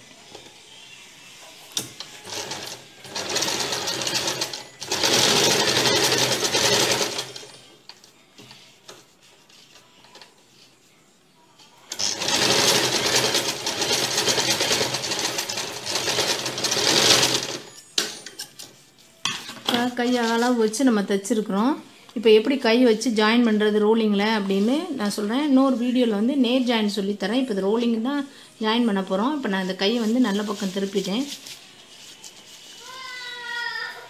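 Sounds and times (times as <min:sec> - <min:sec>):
sewing machine stitching: 0:02.2 - 0:07.6, 0:11.9 - 0:17.7.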